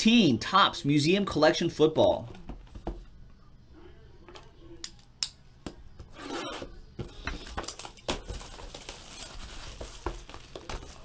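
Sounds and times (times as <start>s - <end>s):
cellophane tearing and crinkling: 7.5s - 11.0s.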